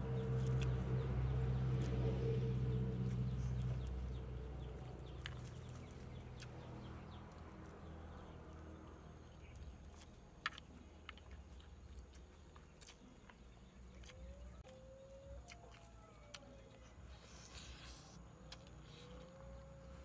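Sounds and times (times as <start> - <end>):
person chewing: 0.0 - 20.0.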